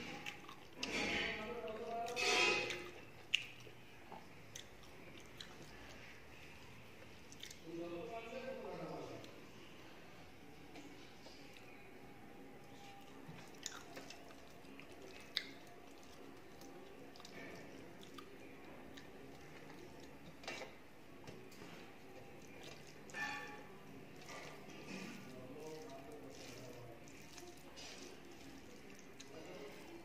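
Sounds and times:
person chewing and smacking: 0.0s - 6.2s, 7.0s - 7.6s, 12.6s - 30.0s
rice squishing by hand: 12.7s - 30.0s.

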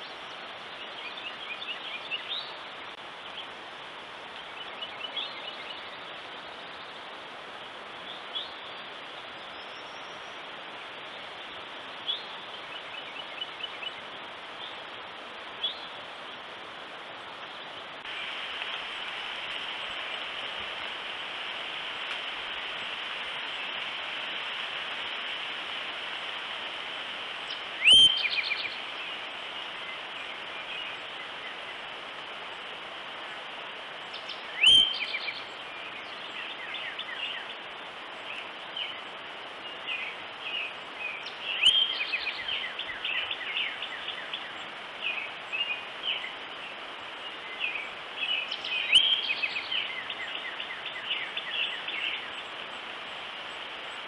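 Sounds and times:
steady outdoor hiss: 0.0s - 54.0s
bird chirps: 27.5s - 28.8s, 34.1s - 35.4s.

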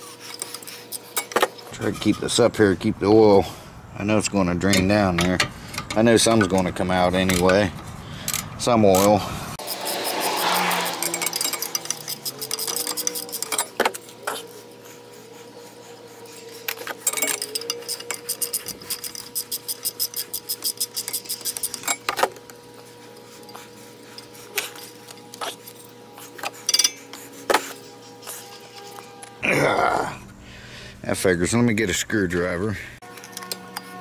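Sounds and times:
hand ratchet clicking: 4.7s - 14.4s, 16.7s - 22.3s
metal clinks and taps: 26.7s - 27.0s.

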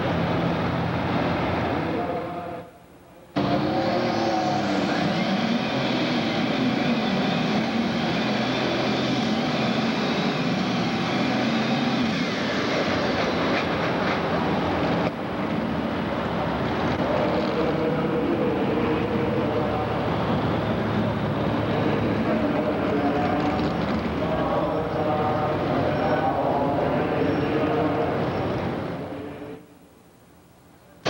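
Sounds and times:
diesel tractor engine running: 0.0s - 2.2s.

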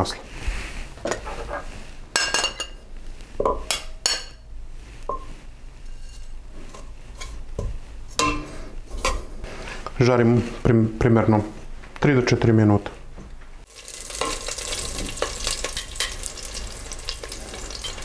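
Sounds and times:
metal tongs clinking on pot: 14.1s - 18.0s.

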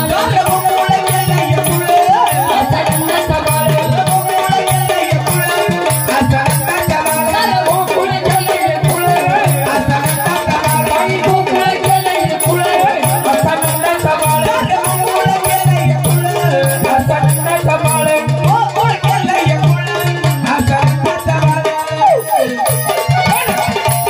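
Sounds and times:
fast percussion beat: 0.0s - 24.0s
woman singing through a pa: 0.0s - 24.0s.

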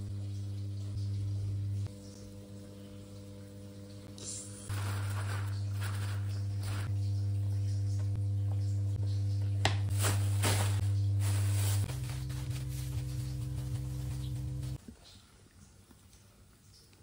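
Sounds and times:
rustling paper and plastic: 4.7s - 6.9s, 9.9s - 13.1s
background music low note: 11.9s - 14.8s.

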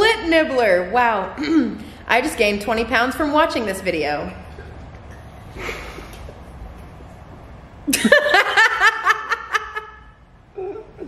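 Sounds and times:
woman laughing loudly: 7.9s - 11.0s.

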